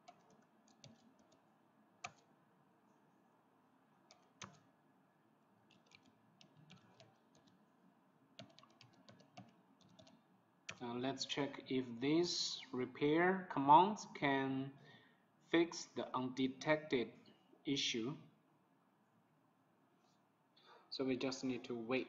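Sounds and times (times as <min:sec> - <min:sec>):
keyboard typing: 0:00.0 - 0:02.3, 0:04.1 - 0:04.7, 0:05.7 - 0:07.6, 0:08.4 - 0:10.8.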